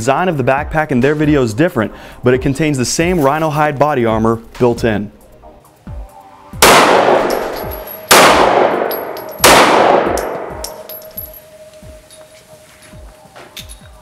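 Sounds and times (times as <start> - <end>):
handgun shots echoing indoors: 6.6 - 11.1.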